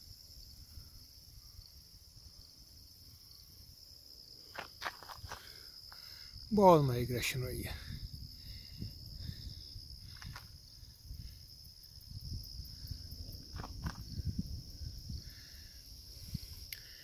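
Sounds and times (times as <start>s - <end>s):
high insect trill: 0.0s - 17.0s
low wind rumble on microphone: 7.1s - 17.0s.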